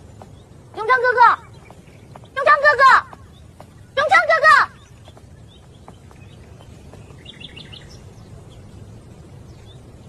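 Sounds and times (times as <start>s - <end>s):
bird chirps: 0.0s - 10.0s
low background rumble: 0.0s - 10.0s.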